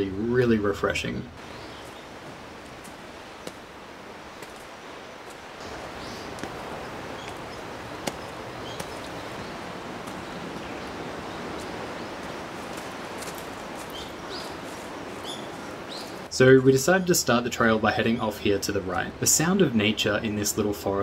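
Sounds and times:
leaves rustling in wind: 0:00.0 - 0:21.0
high bird chirps: 0:13.7 - 0:16.2.

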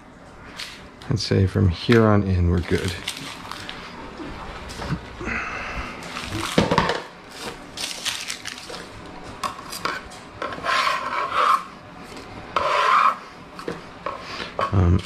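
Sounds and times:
metal scraper dragged across board: 0:10.4 - 0:11.7, 0:12.6 - 0:13.2
onion skins rubbing on wooden board: 0:10.4 - 0:11.7, 0:12.6 - 0:13.2.

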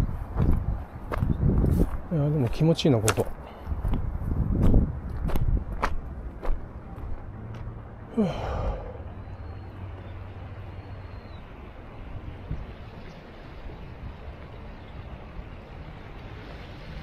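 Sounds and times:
person sighing: 0:08.1 - 0:09.1.

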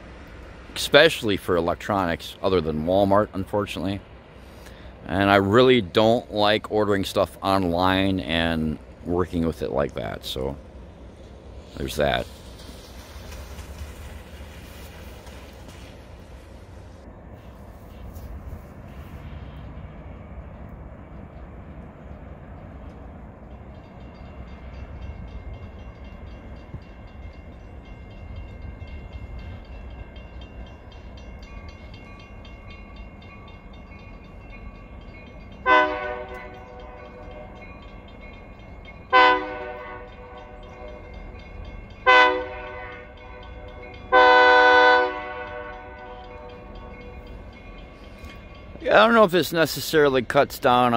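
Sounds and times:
train low rumble: 0:00.0 - 0:50.9
train air horn blasts: 0:35.6 - 0:37.6, 0:39.1 - 0:41.0, 0:42.0 - 0:43.5, 0:44.1 - 0:46.4.

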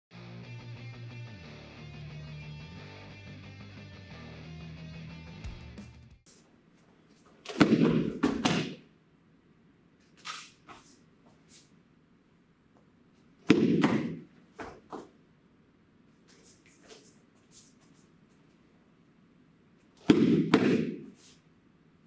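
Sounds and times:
bare feet slapping a mat: 0:07.2 - 0:08.8, 0:13.4 - 0:15.2, 0:20.0 - 0:21.4.

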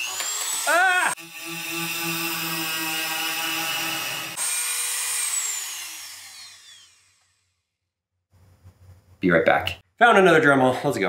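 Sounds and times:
rotary tool grinding metal: 0:00.0 - 0:07.5
motor whine winding down: 0:04.3 - 0:07.5.

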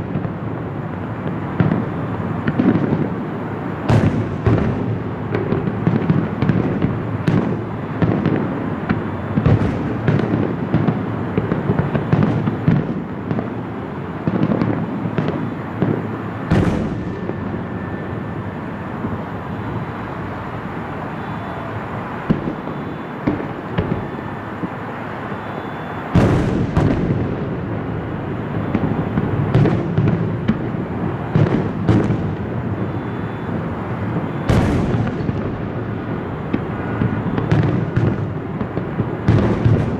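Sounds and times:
fireworks bursting and crackling: 0:00.0 - 0:39.9
loud firework bang: 0:03.8 - 0:13.6, 0:14.2 - 0:17.7, 0:21.2 - 0:24.2, 0:25.4 - 0:27.6, 0:31.3 - 0:33.5, 0:34.2 - 0:35.7, 0:36.5 - 0:39.9.

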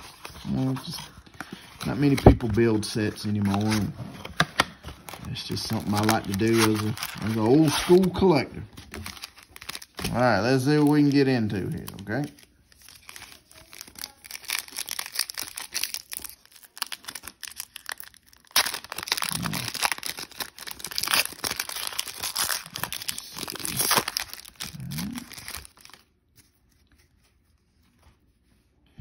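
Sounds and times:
foil wrapper tearing and crinkling: 0:05.1 - 0:26.4.

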